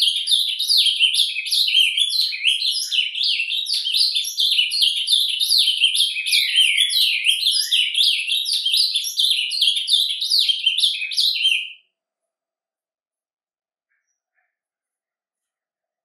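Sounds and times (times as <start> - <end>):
bird warbling song: 0.0 - 11.8.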